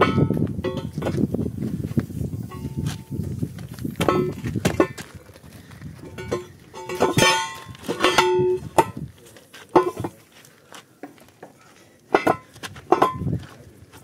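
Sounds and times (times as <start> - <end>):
metal wheel rim clanking: 0.0 - 1.2, 4.0 - 5.0, 6.1 - 9.0, 12.1 - 13.3
sharp ringing metal knocks: 0.0 - 1.2, 4.0 - 5.0, 6.2 - 9.0, 12.1 - 13.3.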